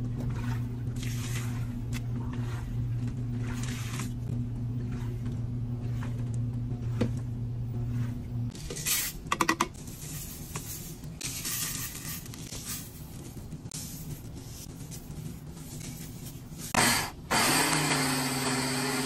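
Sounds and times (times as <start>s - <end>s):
washing machine hum: 0.0s - 19.0s
beads and powder pouring hiss: 9.9s - 13.0s.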